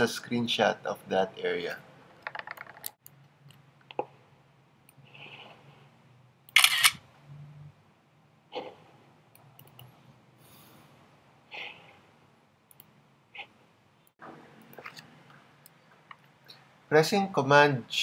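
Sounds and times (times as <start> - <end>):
soft breaths: 4.9 - 6.2, 9.9 - 12.3
computer mouse clicks: 9.3 - 10.0, 12.7 - 12.9.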